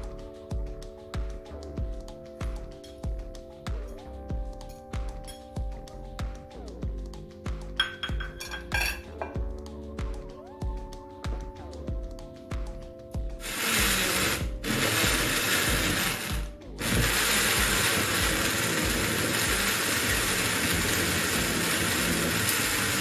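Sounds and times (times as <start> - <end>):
electric blender pureeing: 13.4 - 23.0.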